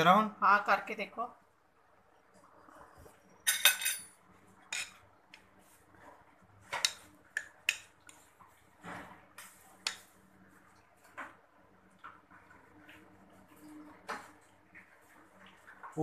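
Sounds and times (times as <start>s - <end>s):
metal spoon clinking on steel bowl: 3.5s - 4.1s.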